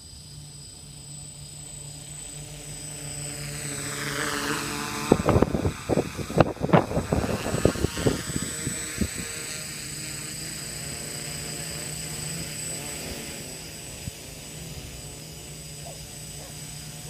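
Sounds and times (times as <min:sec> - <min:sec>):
quadcopter motors buzzing: 0:00.0 - 0:17.0.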